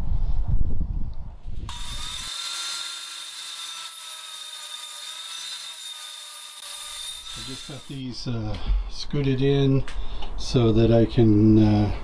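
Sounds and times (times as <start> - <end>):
table saw whining: 1.7 - 8.0
saw cutting wood hiss: 1.7 - 8.1.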